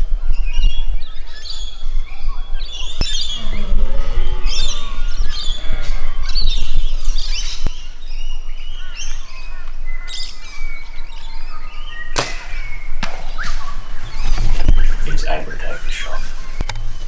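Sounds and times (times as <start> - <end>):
birds chirping and calling: 0.0 - 17.0
compound bow shot crack: 12.1 - 13.9.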